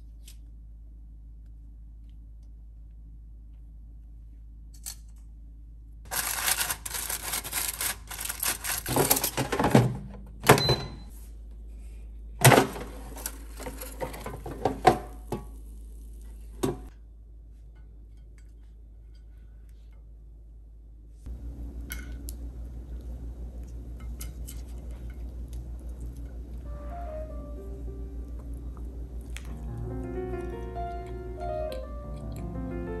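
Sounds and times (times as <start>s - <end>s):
faint low hum: 0.0s - 33.0s
objects clattering and knocking: 6.1s - 10.7s, 12.4s - 15.6s.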